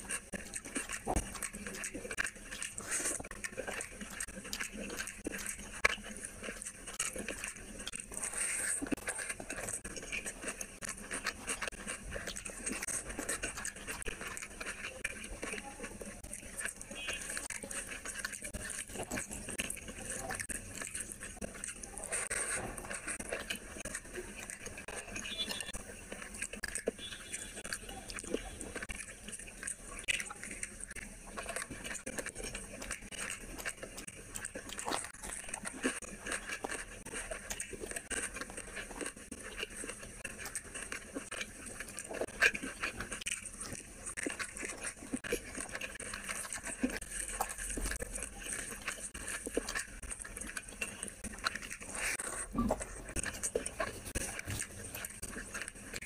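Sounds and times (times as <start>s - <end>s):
chewing and mouth smacking: 0.0s - 56.0s.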